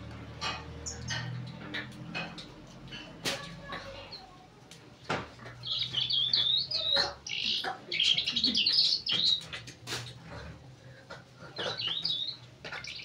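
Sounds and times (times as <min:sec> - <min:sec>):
lark singing: 0:05.6 - 0:09.5, 0:11.6 - 0:13.0.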